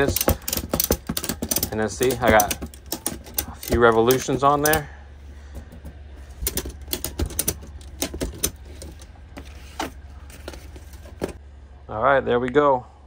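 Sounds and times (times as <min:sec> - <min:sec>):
metal ratchet clicks: 0:00.0 - 0:04.9.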